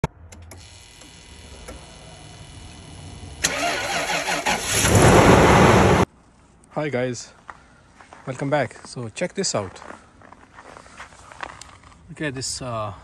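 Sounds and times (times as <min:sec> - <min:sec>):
car engine starting: 0:00.3 - 0:06.1.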